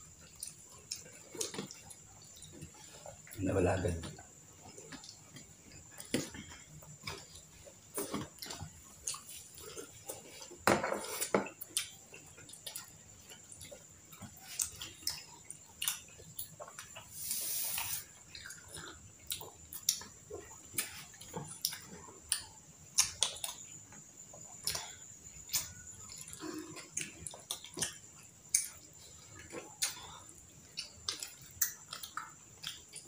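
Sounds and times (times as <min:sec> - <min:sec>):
chewing: 0:00.0 - 0:33.0
brief hiss: 0:17.2 - 0:18.0.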